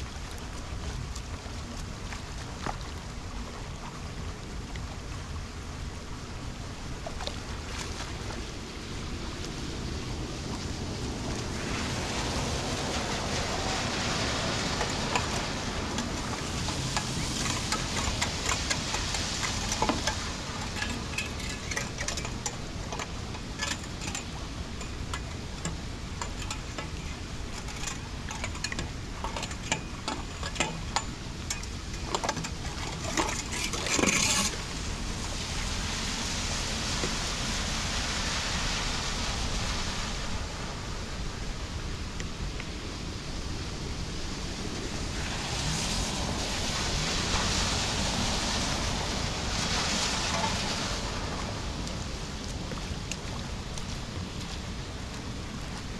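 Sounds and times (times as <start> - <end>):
water washing over street: 0.0 - 55.9
wind and rain: 0.0 - 55.9
debris scraping on drain grate: 14.8 - 34.6.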